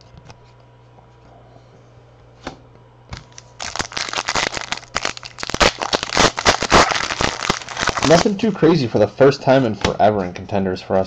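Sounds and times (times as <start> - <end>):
foil wrapper crinkling: 3.2 - 8.3.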